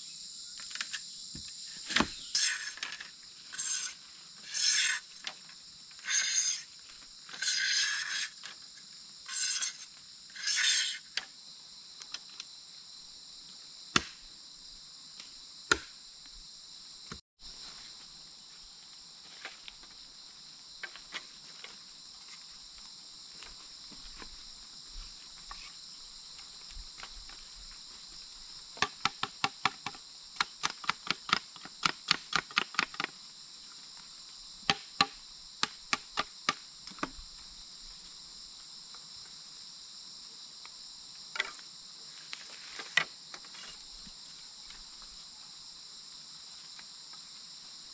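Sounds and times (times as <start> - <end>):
insects droning: 0.0 - 47.9
sharp knocks on bamboo: 1.3 - 2.3, 13.9 - 14.3, 15.2 - 16.0, 28.8 - 33.2, 34.6 - 37.2
machete rasping along bamboo: 1.8 - 5.4, 6.0 - 8.6, 9.2 - 11.2.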